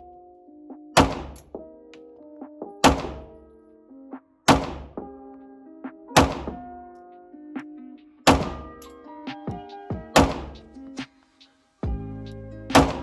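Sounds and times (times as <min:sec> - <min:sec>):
background music: 0:00.0 - 0:13.0
pistol shots: 0:01.0 - 0:01.4, 0:02.8 - 0:03.3, 0:04.5 - 0:05.0, 0:06.2 - 0:06.6, 0:08.3 - 0:08.7, 0:10.2 - 0:10.6, 0:12.7 - 0:13.0.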